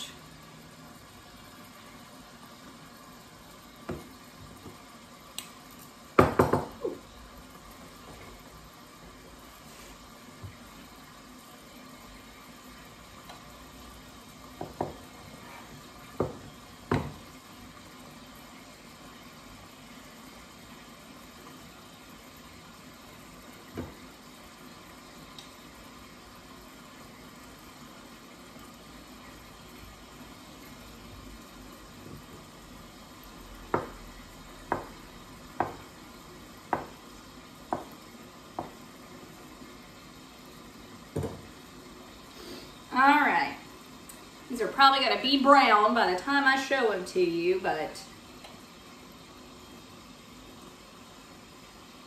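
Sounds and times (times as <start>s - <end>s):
chicken sizzling in a pan: 0.0s - 52.0s
knife knocking on cutting board: 6.2s - 7.0s, 14.6s - 15.0s, 16.2s - 17.2s, 33.7s - 34.0s, 34.7s - 35.0s, 35.6s - 35.9s, 36.7s - 37.0s.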